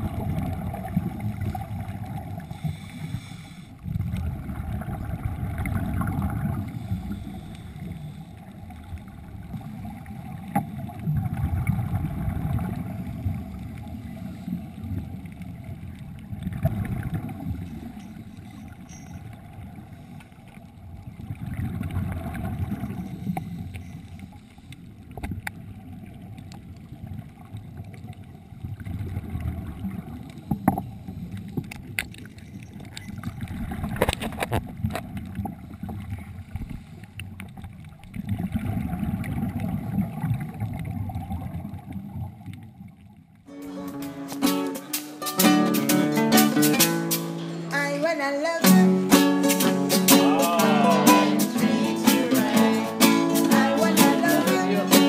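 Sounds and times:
underwater rushing water: 0.0s - 55.0s
faint clicks: 30.2s - 38.3s.

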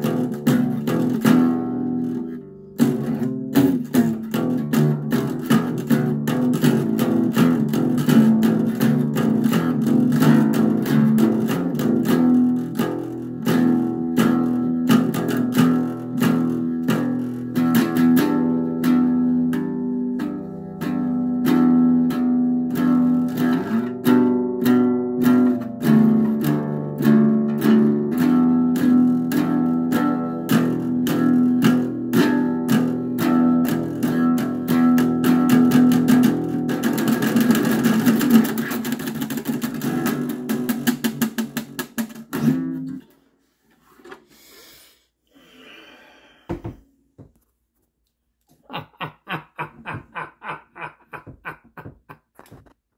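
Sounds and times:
acoustic bass guitar strumming: 0.0s - 43.2s, 48.7s - 52.7s
knock: 46.5s - 47.3s, 51.2s - 52.7s.

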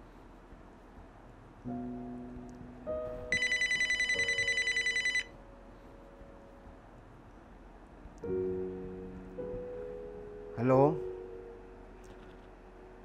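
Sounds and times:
soft piano notes: 0.0s - 13.0s
mobile phone ringing: 3.3s - 5.3s.

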